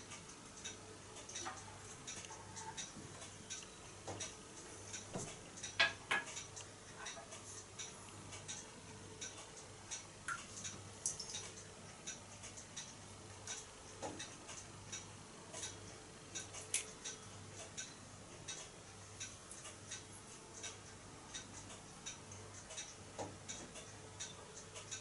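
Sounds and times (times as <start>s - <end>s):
water drips ticking: 5.0s - 15.8s.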